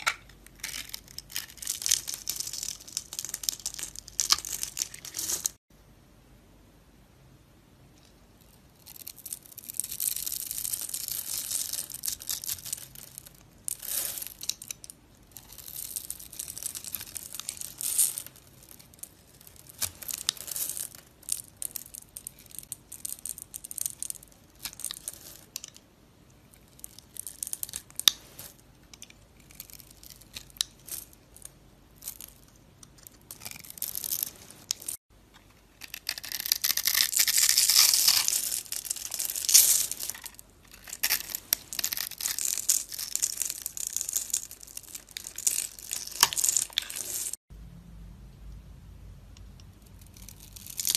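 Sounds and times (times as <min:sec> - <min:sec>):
soap cubes crunching: 0:35.8 - 0:47.4.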